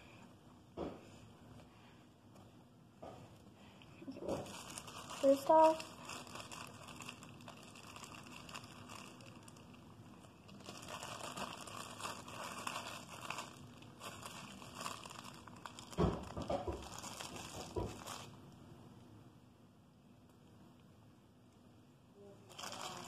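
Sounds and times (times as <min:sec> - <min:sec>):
plastic bag crinkling: 0:04.0 - 0:18.4, 0:22.4 - 0:23.0.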